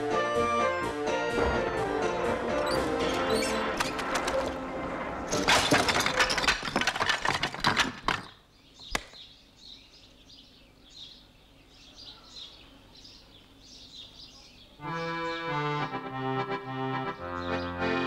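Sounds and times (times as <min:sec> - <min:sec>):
birds chirping: 0:01.2 - 0:05.4, 0:08.1 - 0:18.0
sharp click: 0:08.9 - 0:09.2.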